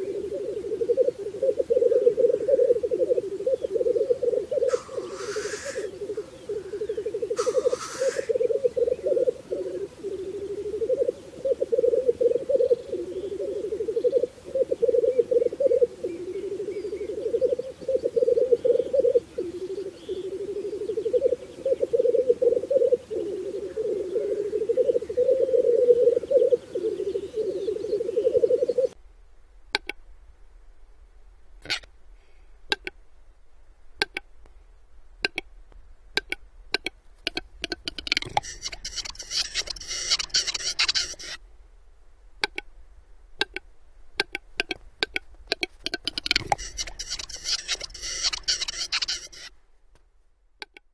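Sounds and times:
black grouse bubbling display song: 0:00.0 - 0:29.0, 0:32.7 - 0:33.0, 0:34.0 - 0:34.4, 0:35.2 - 0:41.4, 0:43.4 - 0:49.5
bird clicking display song: 0:04.7 - 0:05.9, 0:06.8 - 0:08.5, 0:29.7 - 0:30.0, 0:32.7 - 0:33.0, 0:34.0 - 0:34.3, 0:35.2 - 0:35.5, 0:36.1 - 0:41.4, 0:42.4 - 0:42.7, 0:43.4 - 0:49.5, 0:50.6 - 0:50.9
faint high bird chirps: 0:38.2 - 0:41.4, 0:46.3 - 0:49.5.

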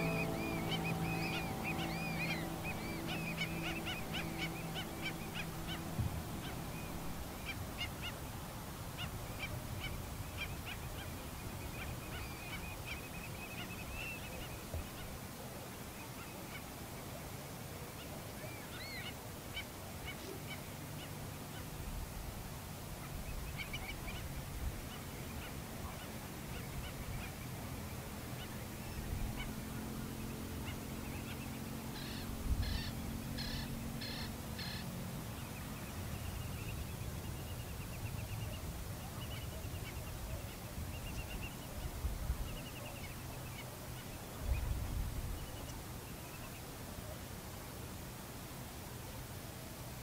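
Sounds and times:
soft music: 0:00.0 - 0:07.8
waterbirds chirping calls: 0:00.0 - 0:47.8.

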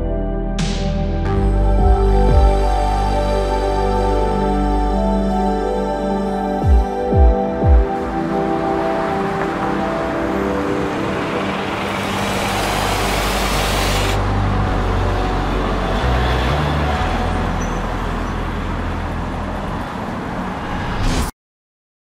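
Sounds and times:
deep bass notes: 0:00.0 - 0:08.6, 0:12.1 - 0:19.6.

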